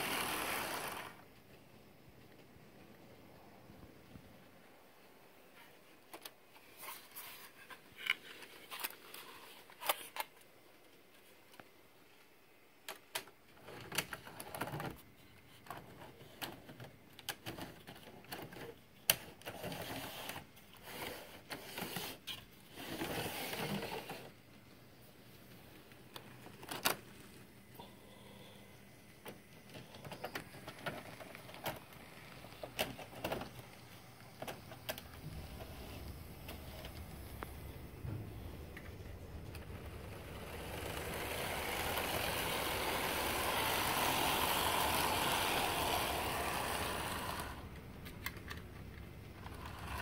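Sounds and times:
small electric motor whirring: 0:00.0 - 0:01.2, 0:39.9 - 0:47.6
wheels clattering over rails: 0:39.5 - 0:47.6.

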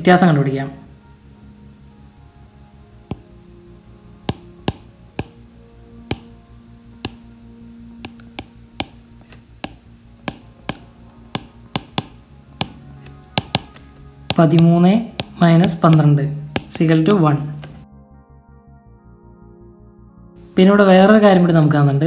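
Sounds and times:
soft background music: 0:00.0 - 0:22.0
stylus tapping on drawing tablet: 0:04.3 - 0:05.4, 0:06.1 - 0:06.3, 0:07.0 - 0:07.2, 0:08.0 - 0:16.9.

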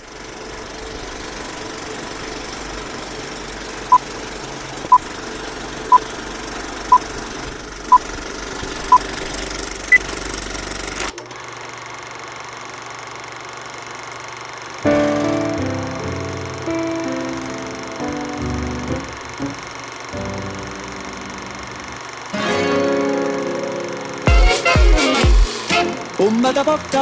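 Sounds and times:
film projector clattering: 0:00.0 - 0:15.3
low hum and hiss: 0:14.8 - 0:27.0.

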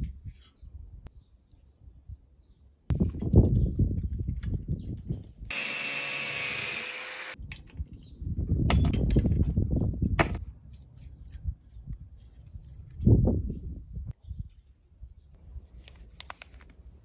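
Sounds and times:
angle grinder whirring: 0:05.5 - 0:07.4.

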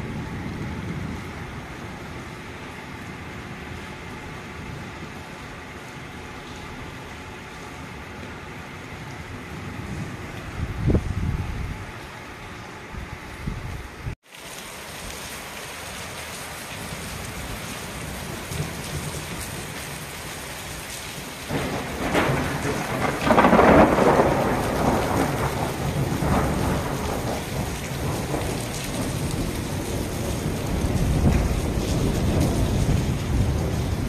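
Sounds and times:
thunder rumble: 0:00.0 - 0:14.2, 0:16.8 - 0:34.0
steady rain: 0:00.0 - 0:34.0.

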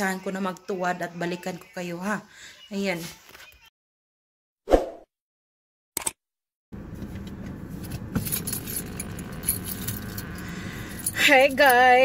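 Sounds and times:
car interior hum: 0:06.8 - 0:11.8
keys clicking and jingling: 0:07.9 - 0:12.0.

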